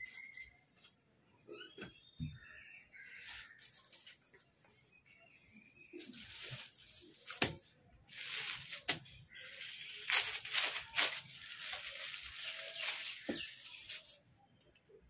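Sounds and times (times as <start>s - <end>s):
plastic packet crinkling: 6.0s - 14.2s.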